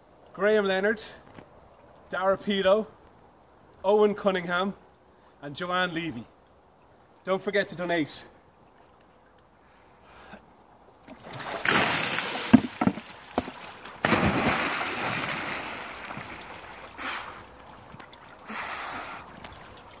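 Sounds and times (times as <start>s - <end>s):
short splashes: 11.0s - 20.0s
big splash into lake water: 11.1s - 17.0s
water pouring from bucket: 11.2s - 17.0s.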